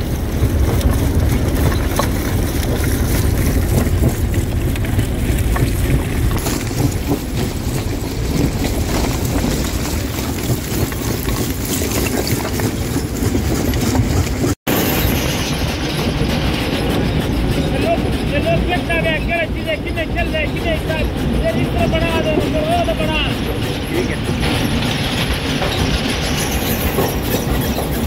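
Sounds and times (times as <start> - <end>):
heavy machine rumble: 0.0 - 28.0
stones knocking and breaking: 0.1 - 14.6.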